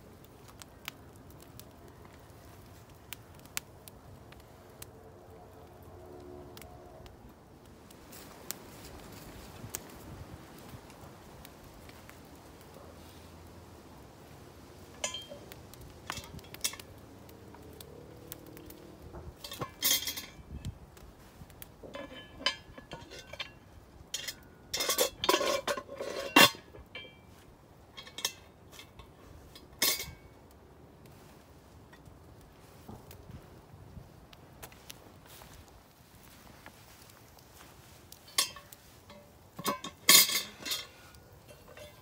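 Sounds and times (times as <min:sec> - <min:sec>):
metal lid clanking on pot: 0:14.9 - 0:16.8, 0:19.4 - 0:20.4, 0:21.9 - 0:23.6, 0:24.2 - 0:27.2, 0:27.9 - 0:28.4, 0:29.8 - 0:30.2, 0:38.3 - 0:42.0.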